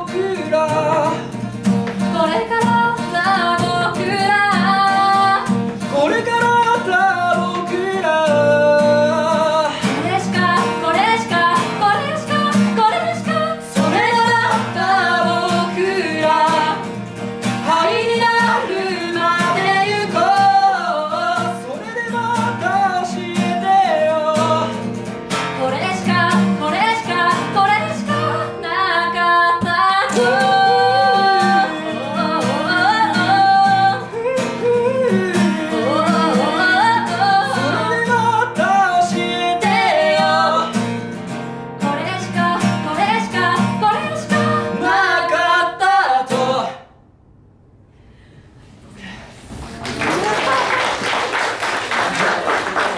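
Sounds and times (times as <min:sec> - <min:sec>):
person singing: 0:00.0 - 0:01.4, 0:02.1 - 0:16.8, 0:17.6 - 0:24.8, 0:25.6 - 0:40.7
acoustic guitar playing: 0:00.0 - 0:48.0.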